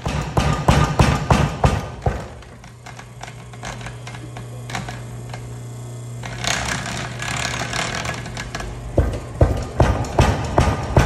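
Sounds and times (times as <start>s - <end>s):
power hammer drive humming: 0.0s - 11.0s
linkage clicking and rattling: 6.2s - 10.6s.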